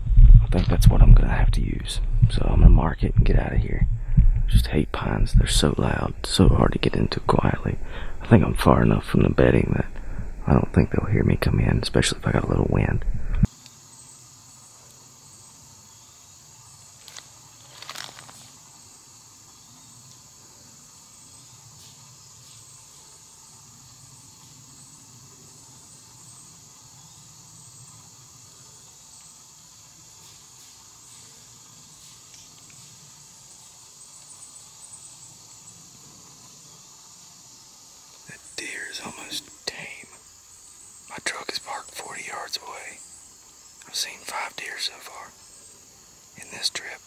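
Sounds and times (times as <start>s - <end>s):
insects chirping: 0.0s - 47.0s
rustling: 17.0s - 18.6s.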